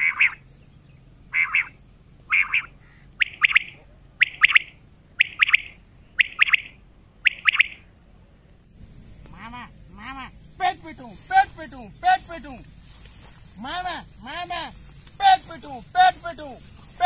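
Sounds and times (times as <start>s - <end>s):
quail calling buzzy note: 0.0s - 0.4s, 1.3s - 7.9s.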